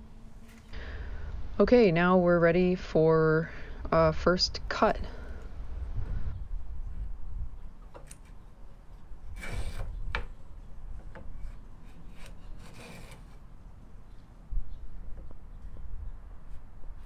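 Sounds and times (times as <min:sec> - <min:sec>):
hand plane scraping wood: 0:09.4 - 0:10.3, 0:11.1 - 0:13.4.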